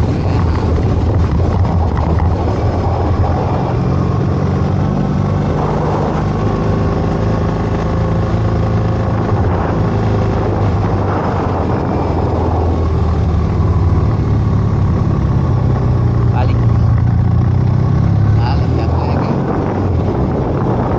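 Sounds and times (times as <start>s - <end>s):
motorcycle engine cruising: 0.0s - 20.9s
wind noise: 0.0s - 20.9s.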